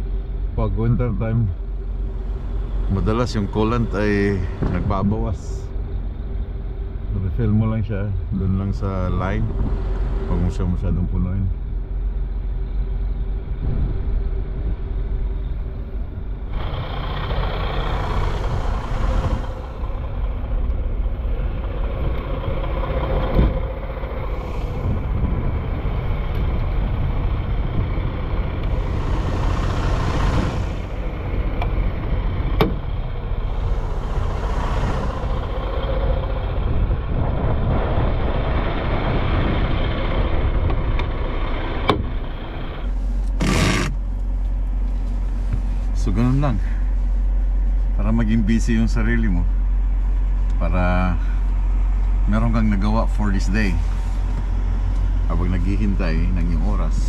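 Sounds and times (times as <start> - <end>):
truck low rumble: 0.0 - 57.0
wind gusts on microphone: 8.2 - 11.2, 13.4 - 41.8
sharp knocks: 32.6 - 32.9.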